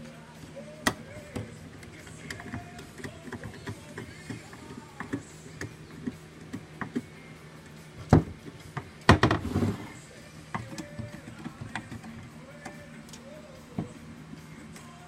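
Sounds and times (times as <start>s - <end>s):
screwdriver turning a screw: 0.4s - 7.8s, 10.4s - 14.0s.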